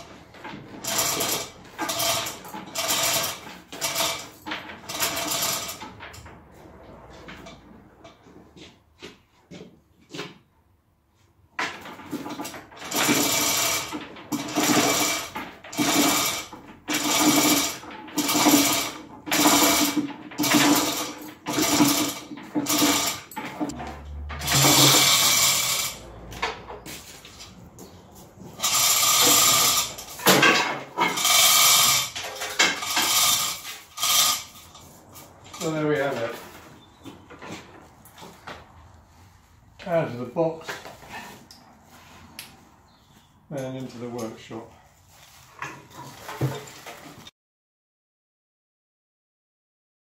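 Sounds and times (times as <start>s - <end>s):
hoist chain clattering: 0.0s - 6.3s, 11.8s - 26.6s, 28.6s - 36.3s.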